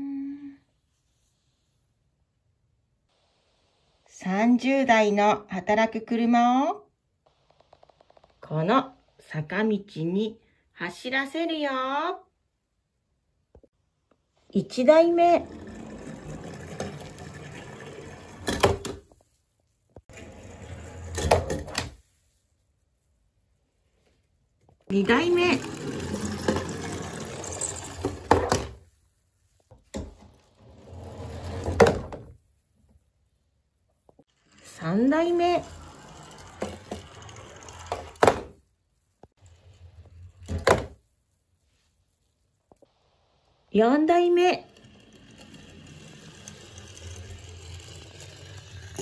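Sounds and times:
toy truck rolling on wooden board: 15.4s - 19.1s, 20.0s - 21.9s, 25.0s - 28.8s, 30.0s - 32.2s, 34.2s - 38.5s, 44.4s - 49.0s.

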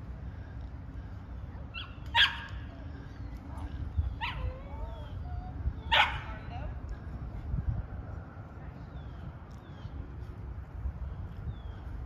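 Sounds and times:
dog barking: 1.8s - 2.5s, 5.9s - 6.3s.

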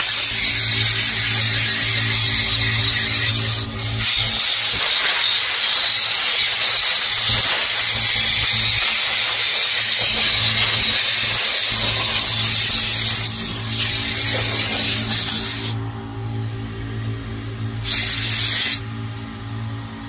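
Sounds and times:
compressed air hissing: 0.9s - 15.8s, 17.8s - 18.9s.

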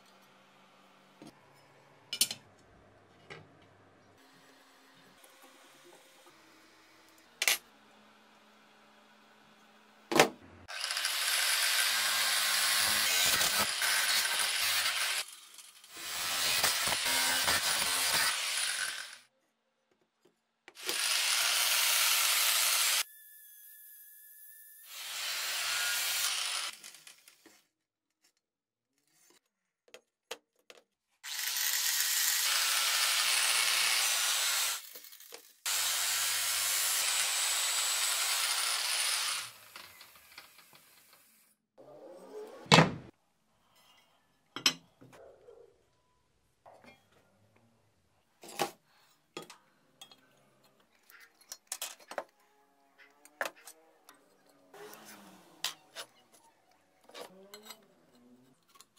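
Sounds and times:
power tool on metal: 10.7s - 19.2s, 20.8s - 27.3s, 31.2s - 41.5s.

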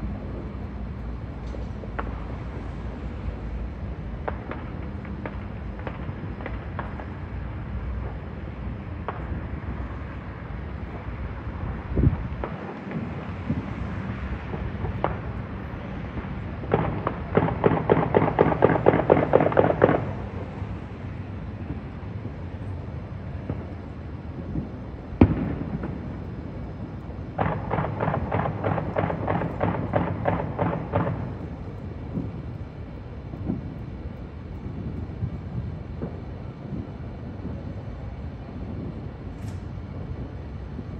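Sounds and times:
fireworks popping: 1.3s - 10.2s, 12.0s - 40.9s.

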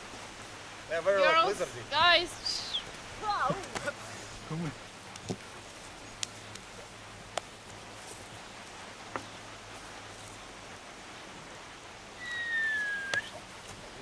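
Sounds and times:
open-air hiss: 0.0s - 14.0s
whistled note falling in pitch: 12.2s - 13.4s.

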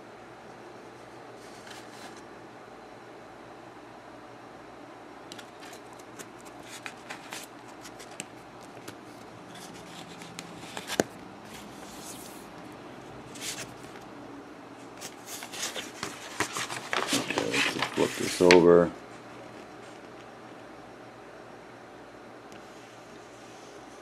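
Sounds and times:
paper rustling: 5.3s - 12.5s, 13.3s - 14.0s, 15.0s - 18.9s.

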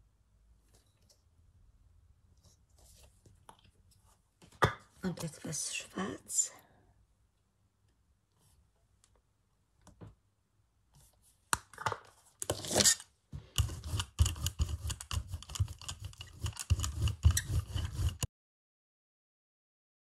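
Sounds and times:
brayer rolling sticky paint: 12.4s - 18.3s.

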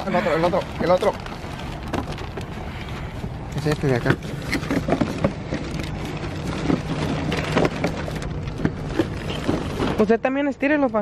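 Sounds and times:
plastic bags crinkling: 0.0s - 10.3s.

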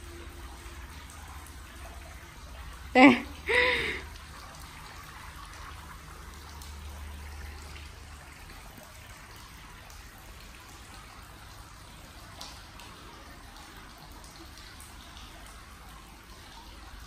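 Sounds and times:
water trickling: 0.0s - 17.0s.

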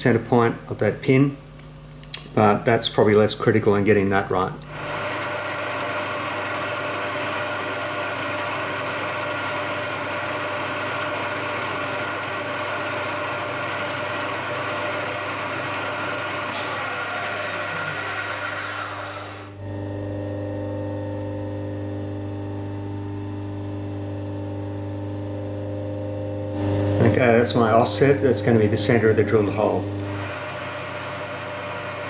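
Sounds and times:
milling machine spindle running: 3.7s - 19.9s, 26.6s - 32.0s.

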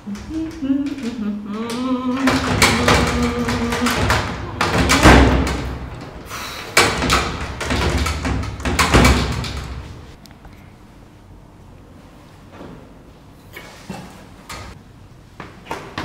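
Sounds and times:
lift door rattling: 0.0s - 10.2s
metal lift door banging: 0.1s - 10.2s.

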